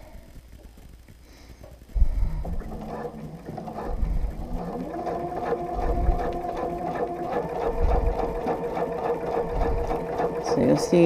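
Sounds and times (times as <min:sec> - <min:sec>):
needle ticking: 0:01.8 - 0:11.0
sewing machine running: 0:02.2 - 0:11.0.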